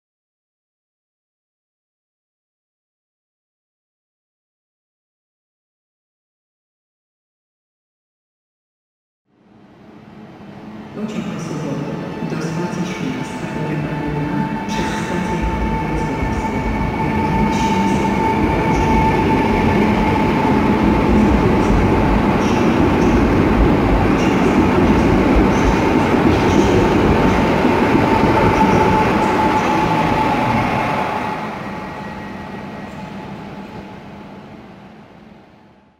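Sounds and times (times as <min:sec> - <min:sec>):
train wheels rumbling: 0:10.8 - 0:34.7.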